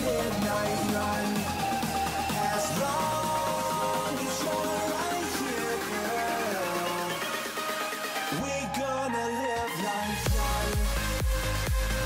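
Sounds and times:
electronic background music: 0.0 - 12.0.

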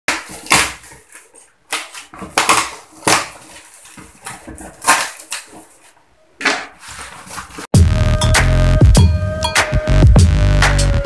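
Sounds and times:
cardboard box tearing open: 0.1 - 5.8.

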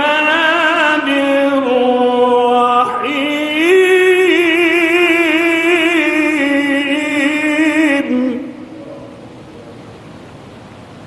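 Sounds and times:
man reciting melodically: 0.0 - 9.3.

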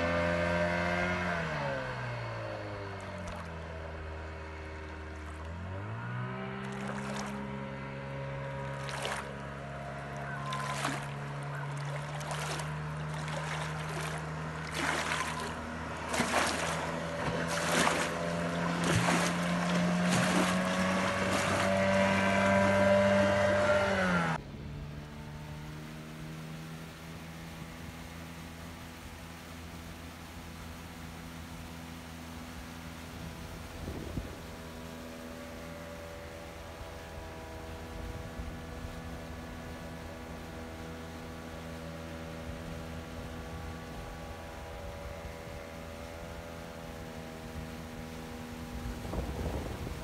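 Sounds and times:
outboard motor running: 0.0 - 50.0.

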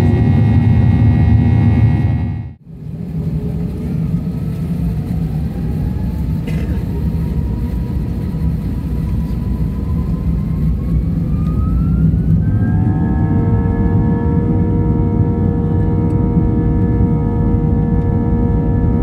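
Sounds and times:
jet fan whine rising in pitch: 0.0 - 2.6, 7.6 - 19.0
low engine rumble in cabin: 0.0 - 11.3, 12.0 - 19.0.

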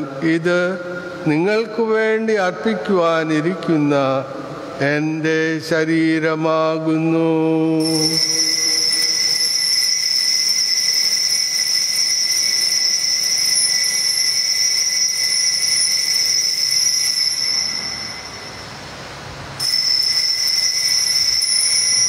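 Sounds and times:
altar bell ringing: 7.8 - 19.0, 19.6 - 22.0.

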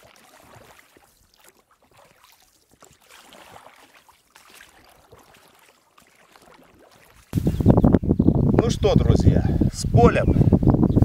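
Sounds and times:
water splashing around boat: 0.0 - 7.4.

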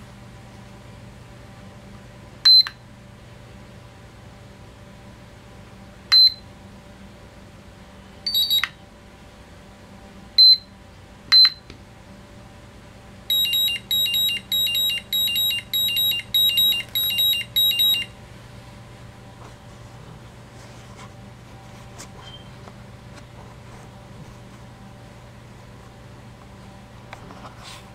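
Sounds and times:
battery charger beeping: 8.3 - 8.8, 13.3 - 18.2.

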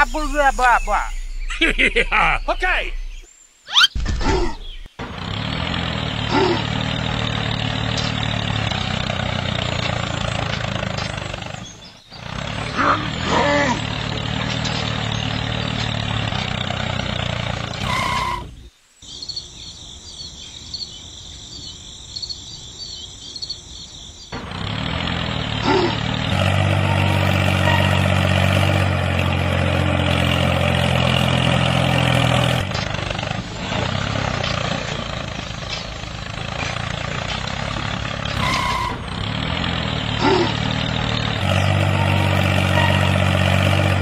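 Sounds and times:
tractor engine running: 4.6 - 18.7, 24.3 - 44.0.

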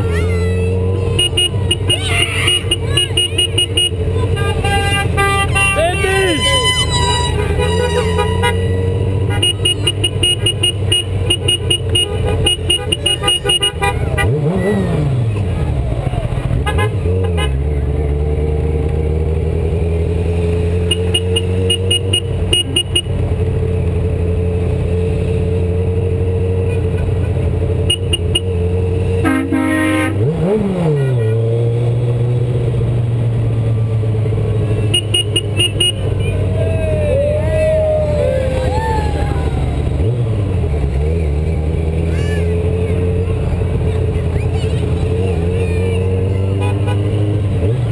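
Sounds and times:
motorcycle engine running: 0.0 - 47.9
horn honking: 0.1 - 15.4, 16.5 - 17.8, 20.5 - 23.7, 26.5 - 32.1, 33.8 - 38.6, 44.8 - 47.8.

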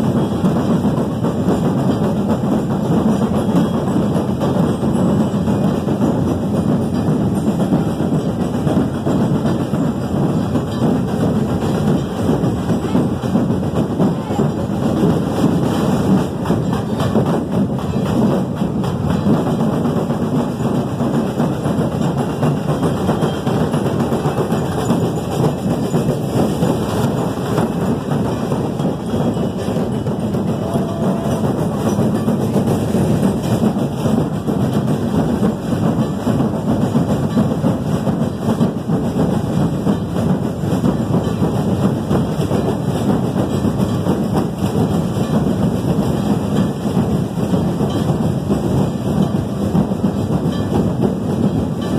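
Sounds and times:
crowd din: 0.0 - 38.2
drumming: 0.0 - 51.9.

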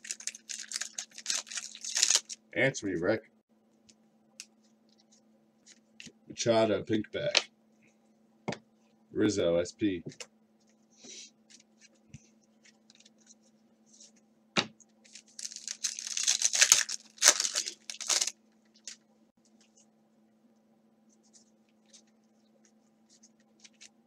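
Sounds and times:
cards rustling: 0.0 - 2.4, 15.0 - 19.6, 21.8 - 24.0
foil wrapper tearing: 0.0 - 2.4, 15.1 - 19.0.

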